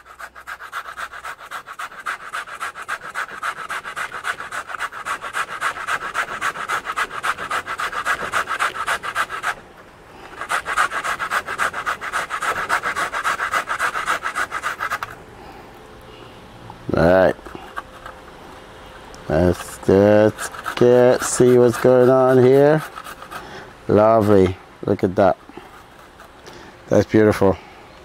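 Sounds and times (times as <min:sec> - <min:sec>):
grating on a metal grater: 0:00.0 - 0:09.6, 0:10.3 - 0:15.2, 0:19.3 - 0:24.5.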